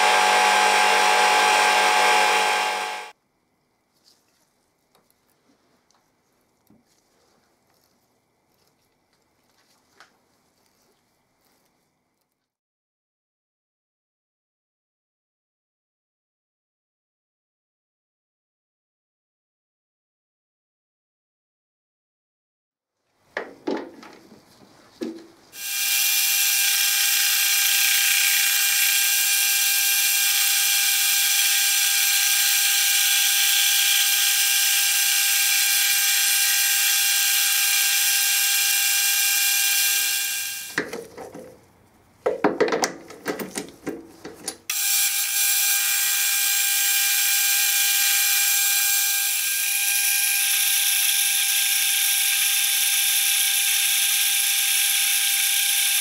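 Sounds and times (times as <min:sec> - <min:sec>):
metal lathe whine and hiss: 0:00.0 - 0:03.1, 0:25.6 - 0:40.8, 0:44.7 - 0:56.0
knocks and clunks: 0:23.4 - 0:24.4, 0:42.2 - 0:44.7.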